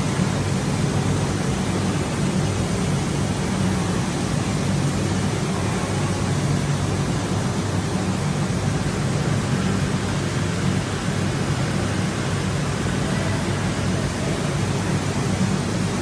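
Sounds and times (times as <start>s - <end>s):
water rushing through pipes: 0.0s - 16.0s.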